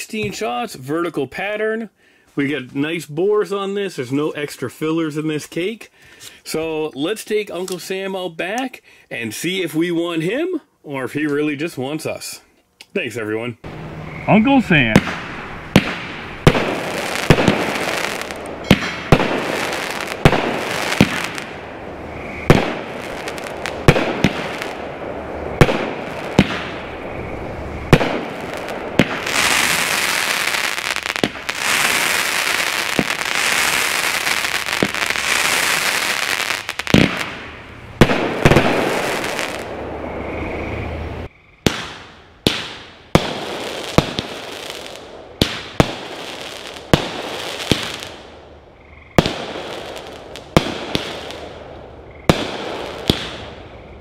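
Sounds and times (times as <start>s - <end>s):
firework crackle: 13.7s - 40.1s, 41.6s - 48.5s, 49.2s - 53.7s
firework launch thumps and bursts: 14.7s - 21.5s, 22.5s - 24.8s, 25.6s - 26.8s, 27.9s - 32.2s, 34.4s - 36.1s, 36.7s - 39.6s, 41.6s - 44.6s, 46.9s - 48.1s, 52.3s - 53.5s.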